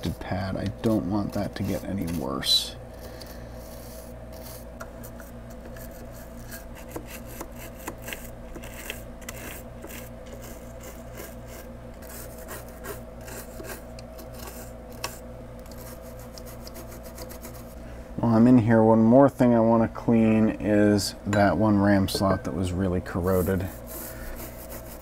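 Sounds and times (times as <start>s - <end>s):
steady low hum: 0.0s - 25.0s
toothbrush scrubbing circuit board: 5.8s - 17.7s, 23.2s - 25.0s.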